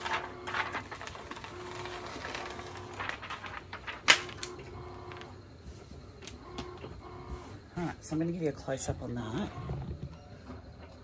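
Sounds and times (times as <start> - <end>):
plastic sheet crinkling: 0.0 - 5.3.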